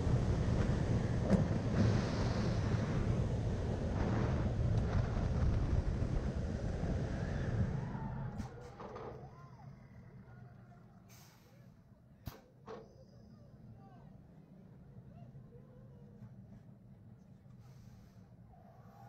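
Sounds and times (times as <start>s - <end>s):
wind buffeting microphone: 0.0s - 8.4s
roller coaster train on track: 0.0s - 19.0s.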